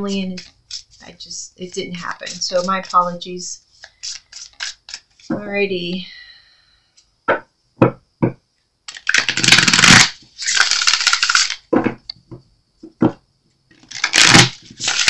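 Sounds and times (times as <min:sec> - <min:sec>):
cards shuffling: 0:03.7 - 0:05.4, 0:08.9 - 0:11.7, 0:13.8 - 0:15.0.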